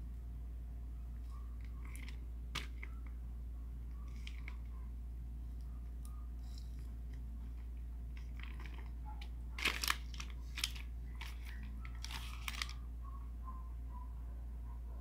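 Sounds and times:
plastic sheet crinkling: 4.1s - 4.8s, 6.7s - 12.8s.

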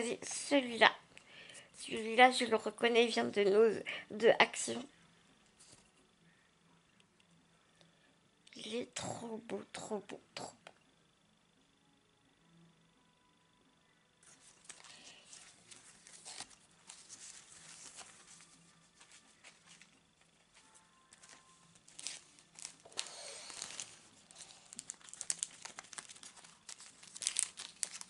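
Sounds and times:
paper rustling: 14.2s - 28.0s.

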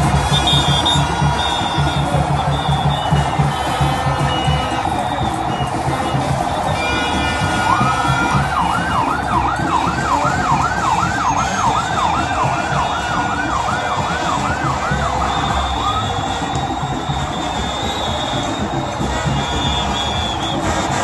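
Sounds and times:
loud crowd din: 0.0s - 21.0s
siren yelping: 7.6s - 18.9s.

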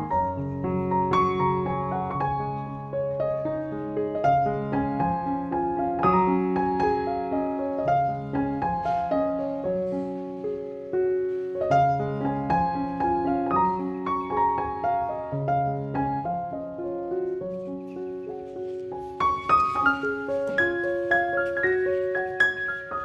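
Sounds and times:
piano music: 0.0s - 23.0s.

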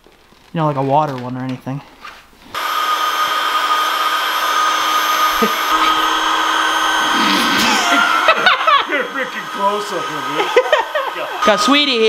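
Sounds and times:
electric air pump whirring: 2.5s - 12.0s
lower hum: 2.6s - 12.0s.

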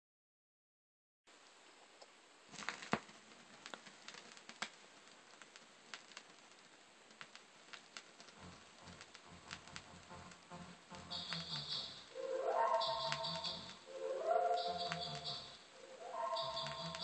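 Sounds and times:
vinyl surface hiss: 1.3s - 17.0s
vinyl clicks and pops: 2.0s - 13.8s, 14.6s - 15.5s, 16.4s - 17.0s
low rumble: 8.3s - 17.0s.

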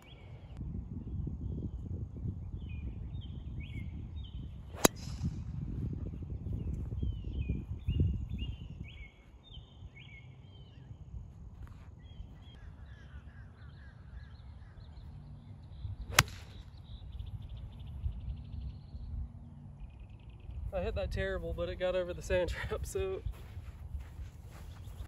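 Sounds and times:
birds chirping: 0.0s - 25.0s
golf club striking ball: 4.8s - 5.4s, 16.1s - 16.6s.

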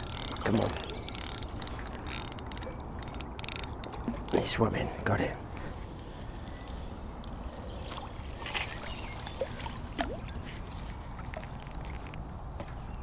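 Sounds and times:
water splashing and dripping: 0.0s - 2.0s, 7.9s - 11.6s.

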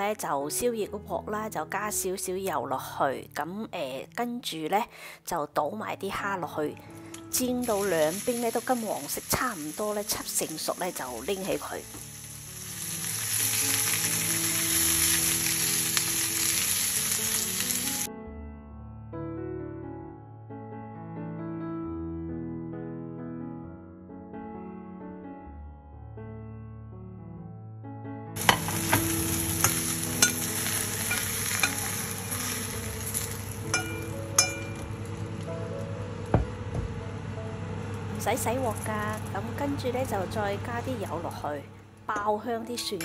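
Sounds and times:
soft background music: 0.0s - 43.0s
prawns sizzling in hot oil: 7.0s - 18.1s, 28.4s - 35.4s
spatula turning food in pan: 28.4s - 35.0s.

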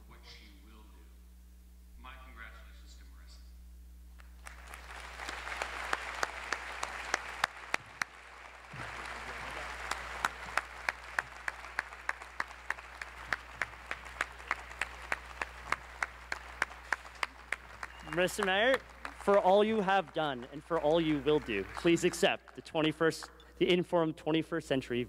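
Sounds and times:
close sharp claps: 4.1s - 23.8s
audience applauding: 4.3s - 23.6s.

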